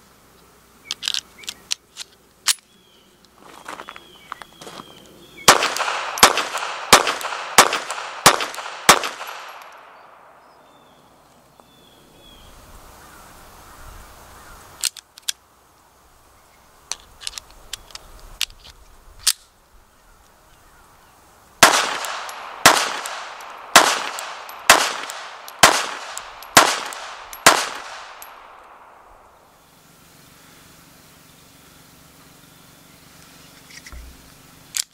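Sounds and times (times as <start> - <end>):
pistol shots: 5.4 - 10.4, 21.6 - 29.2.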